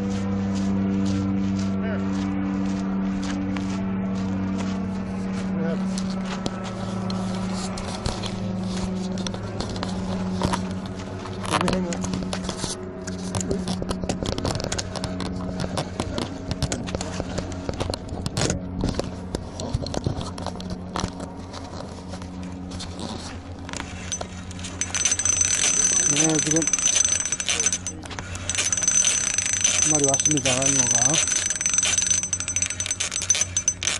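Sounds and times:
fishing reel scraping and clicking: 23.8s - 33.9s.

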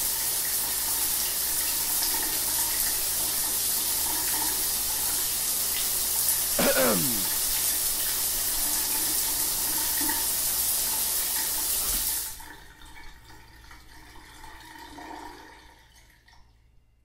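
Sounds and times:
rushing water from tap: 8.0s - 15.8s.

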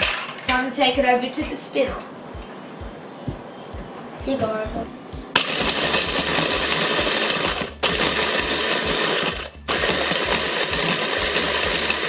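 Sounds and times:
food chopper crushing biscuits: 5.4s - 12.0s.

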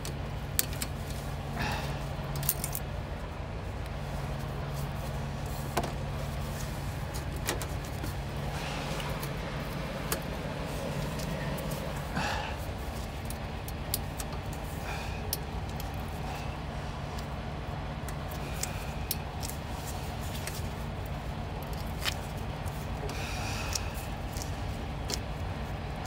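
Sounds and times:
truck engine idling: 0.0s - 26.0s
clicks and clinks on exhaust pipe: 2.2s - 3.0s.

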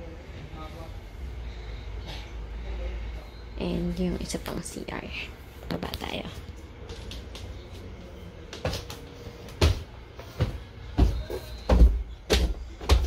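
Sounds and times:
footsteps on wooden stairs: 8.5s - 13.0s.

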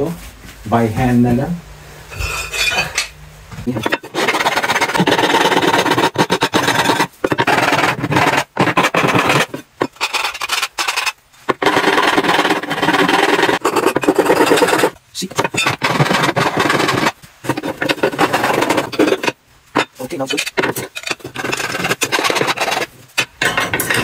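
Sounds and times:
file scraping metal: 2.2s - 3.1s, 3.7s - 24.0s.

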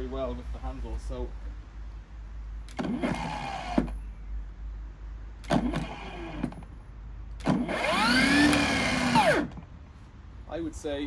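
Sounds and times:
lawnmower motor whining: 2.7s - 4.0s, 5.4s - 6.7s, 7.4s - 9.7s.

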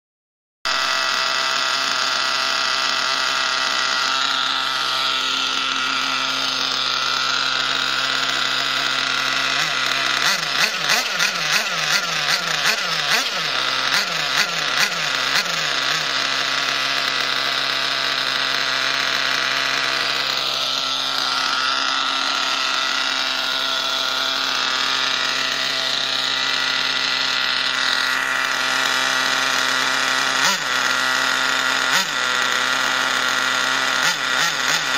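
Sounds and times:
small nitro engine idling: 0.7s - 34.9s.

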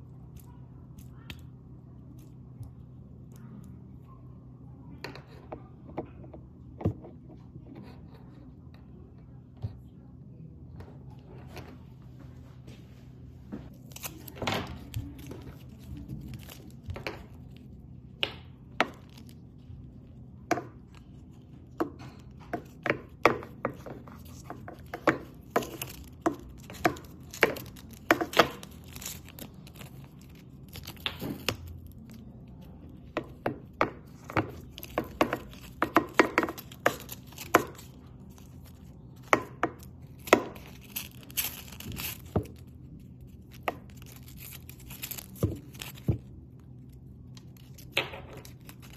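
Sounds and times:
faint steady hum: 0.0s - 48.9s
plastic strip crackling: 13.8s - 46.3s, 47.3s - 48.9s.

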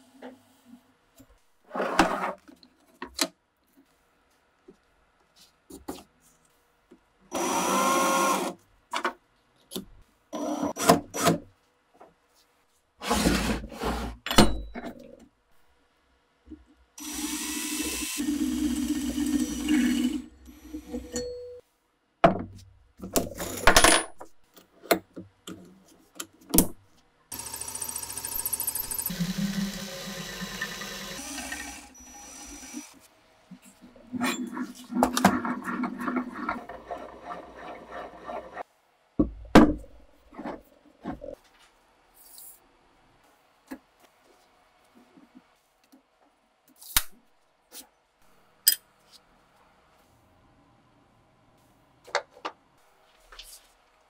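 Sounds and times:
cordless drill motor running: 17.0s - 19.7s, 27.3s - 33.0s.

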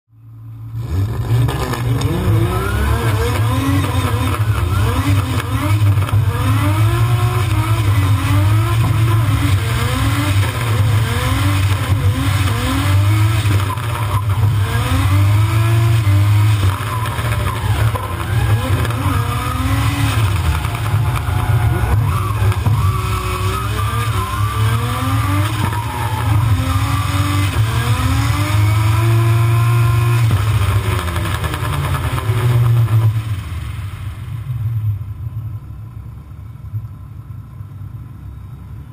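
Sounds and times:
car engine revving: 0.3s - 36.0s
heavy low rumble: 16.8s - 25.0s.

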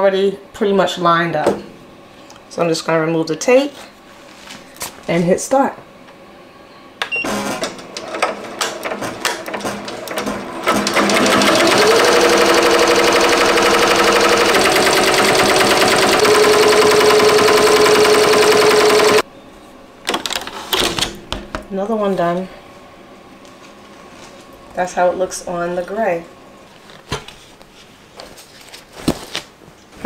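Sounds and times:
machine clicks: 7.6s - 19.2s
embroidery machine stitching rattle: 8.0s - 19.2s.

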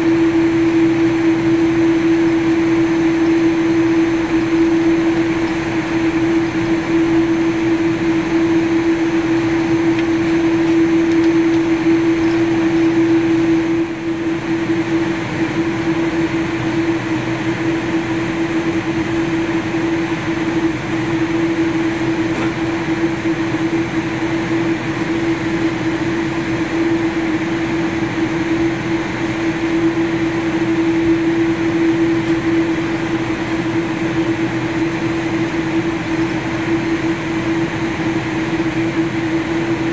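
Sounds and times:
airliner cabin noise: 0.0s - 39.9s.

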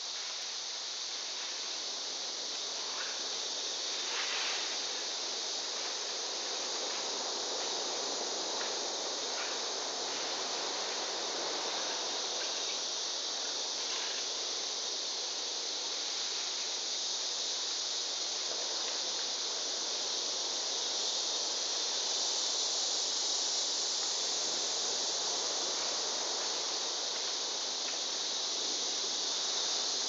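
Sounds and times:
insect chorus drone: 0.0s - 30.0s.

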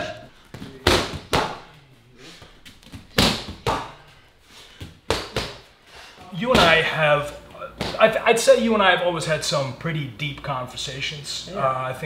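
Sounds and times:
gloved punches smacking pads: 0.8s - 1.6s, 2.9s - 4.0s, 5.0s - 5.6s.

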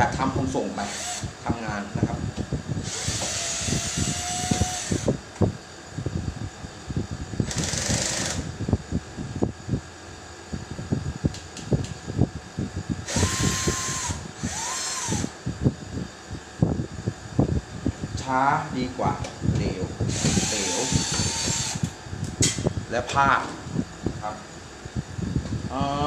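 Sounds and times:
electric drill motor whining: 0.8s - 1.3s, 2.8s - 5.2s, 7.4s - 8.5s, 13.0s - 15.4s, 20.1s - 21.9s.

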